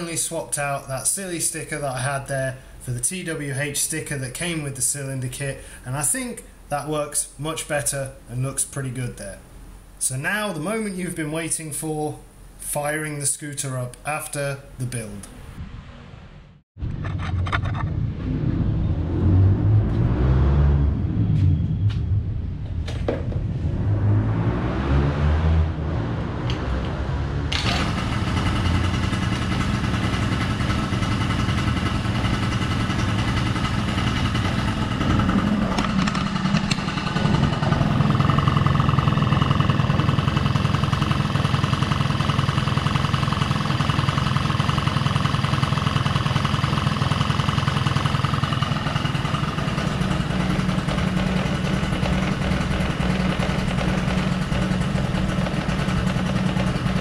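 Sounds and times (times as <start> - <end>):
scooter engine running: 26.3 - 57.0.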